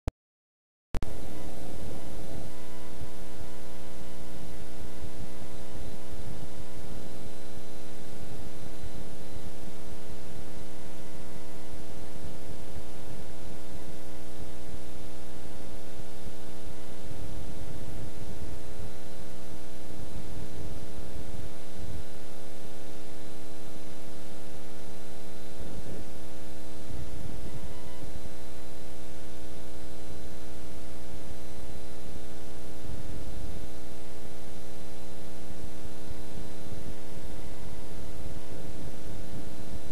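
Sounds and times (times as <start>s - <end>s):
electrical mains hum with hiss: 1.0s - 39.9s.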